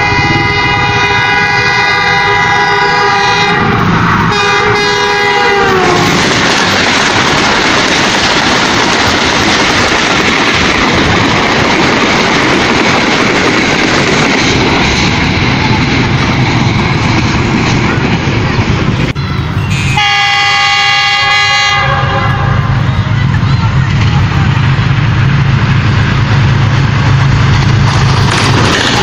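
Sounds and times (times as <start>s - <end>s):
train horn long note: 0.0s - 6.2s, 19.2s - 23.1s
train wheels running: 0.0s - 29.0s.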